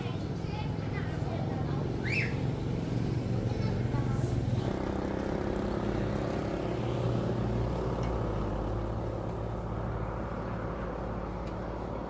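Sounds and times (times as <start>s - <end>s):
engine running steadily: 0.0s - 12.0s.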